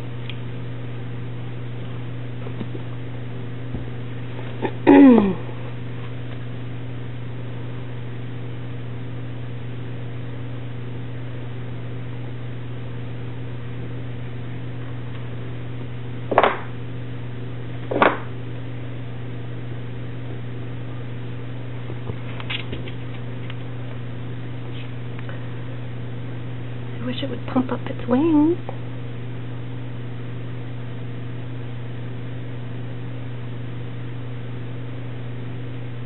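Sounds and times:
low mechanical hum: 0:00.0 - 0:36.0
sudden loud noises: 0:04.6 - 0:05.6.

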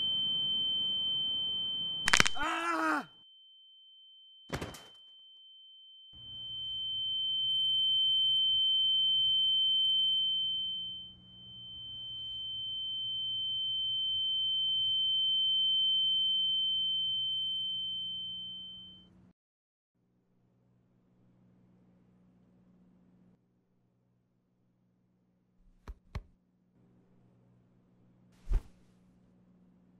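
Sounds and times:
high-pitched ringing tone: 0:00.0 - 0:02.3, 0:03.2 - 0:19.2.

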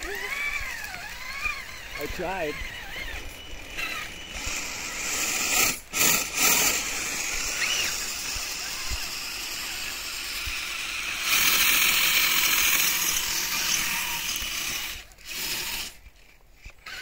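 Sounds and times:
rc vehicle drivetrain running: 0:00.0 - 0:17.0.

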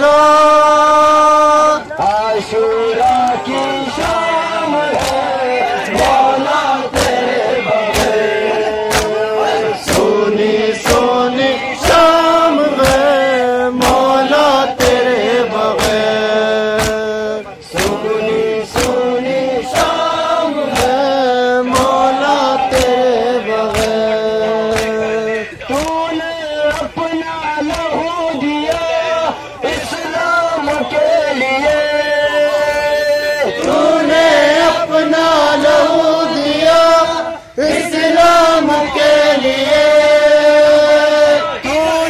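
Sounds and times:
men chanting in unison: 0:00.0 - 0:42.0
chest-beating slaps: 0:04.9 - 0:06.3, 0:08.8 - 0:09.2, 0:10.8 - 0:11.2, 0:12.8 - 0:13.2, 0:15.8 - 0:16.1, 0:16.7 - 0:18.0, 0:18.7 - 0:19.0, 0:20.7 - 0:21.1, 0:21.7 - 0:23.0, 0:23.7 - 0:24.1, 0:24.7 - 0:25.0.

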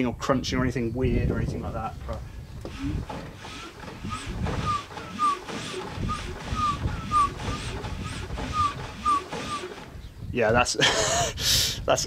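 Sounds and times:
engine churning: 0:02.0 - 0:10.4
short squeaks: 0:02.6 - 0:10.2.

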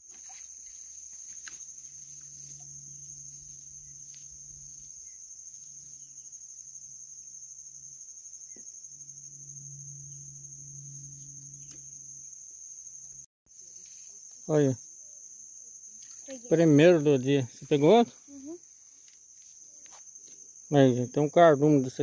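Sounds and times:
high-pitched insect chorus: 0:00.0 - 0:22.0
low hum: 0:00.8 - 0:13.3.

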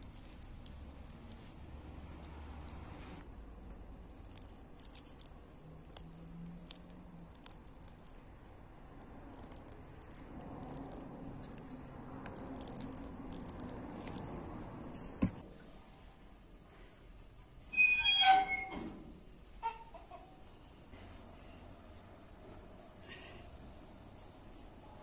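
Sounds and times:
small crackling ticks: 0:00.0 - 0:14.8.

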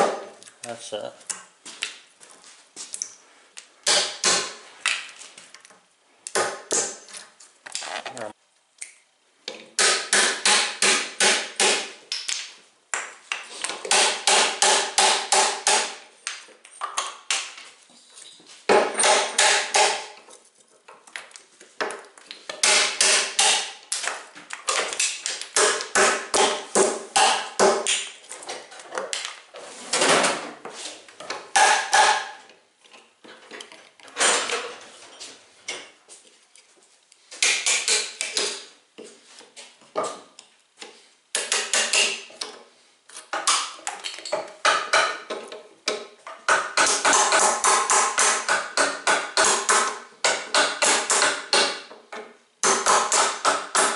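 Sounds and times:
hammer striking chisel: 0:09.8 - 0:11.9, 0:13.8 - 0:16.0, 0:18.7 - 0:20.2, 0:22.5 - 0:24.2, 0:24.8 - 0:28.1, 0:31.5 - 0:32.4, 0:37.4 - 0:38.7, 0:41.4 - 0:42.3, 0:43.3 - 0:52.0, 0:52.6 - 0:53.9.

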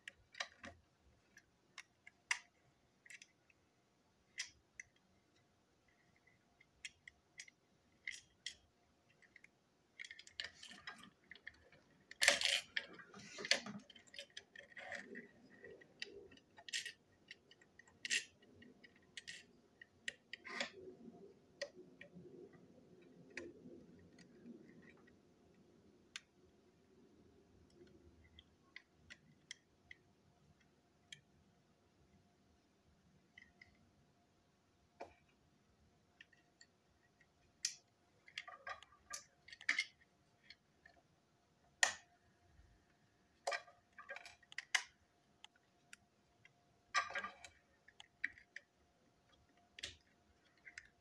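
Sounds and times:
clicks of small plastic parts: 0:00.0 - 0:03.6, 0:04.3 - 0:25.2, 0:36.2 - 0:41.0, 0:41.8 - 0:42.1, 0:43.4 - 0:51.0.

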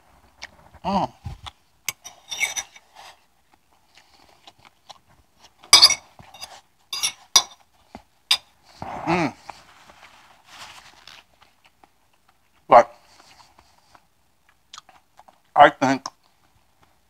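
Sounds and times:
fork clinking on plate: 0:01.9 - 0:02.8, 0:05.7 - 0:07.6.

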